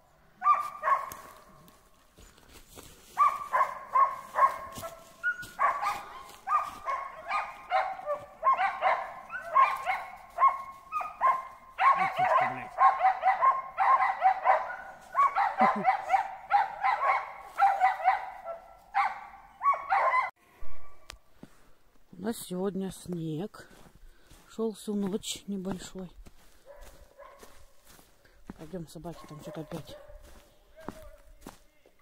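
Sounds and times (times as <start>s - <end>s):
dogs barking: 0.4s - 1.6s, 3.1s - 20.4s, 26.6s - 28.0s, 29.1s - 31.0s.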